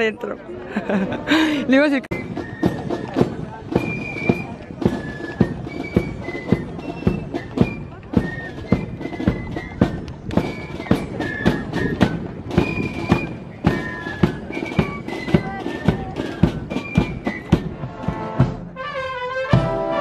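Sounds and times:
marching drums beating: 0:02.1 - 0:20.0
brass band playing: 0:12.5 - 0:20.0.

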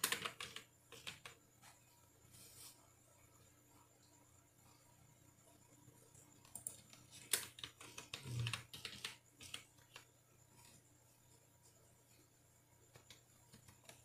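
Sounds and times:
keyboard typing: 0:00.0 - 0:01.4, 0:06.2 - 0:10.8.

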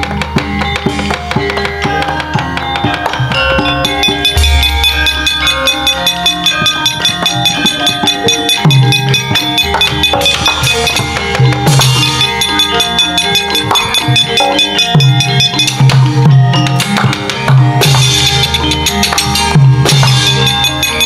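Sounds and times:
hand drum rhythm: 0:00.0 - 0:21.0
metallophones ringing: 0:00.0 - 0:21.0.

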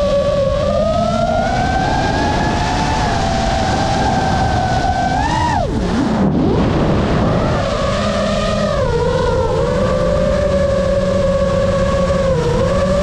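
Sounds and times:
drone motors whining: 0:00.0 - 0:13.0.

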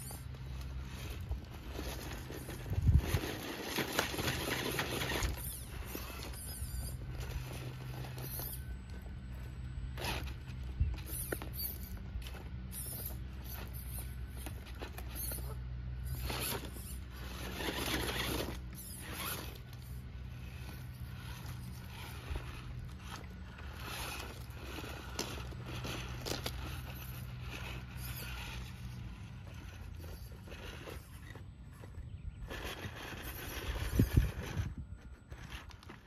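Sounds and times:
electric motor whirring: 0:00.0 - 0:36.0
tyres scraping on rocks: 0:00.0 - 0:36.0
rocks crunching: 0:16.2 - 0:32.0.

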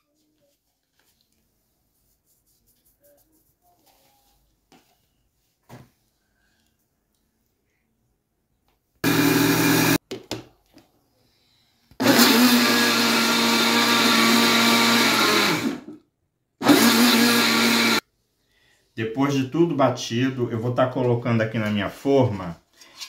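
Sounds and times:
blender running: 0:09.0 - 0:10.0, 0:12.0 - 0:16.0, 0:16.6 - 0:18.0.

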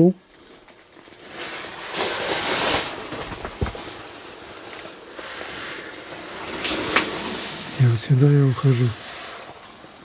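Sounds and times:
clothing scraping against rock: 0:00.4 - 0:04.2.

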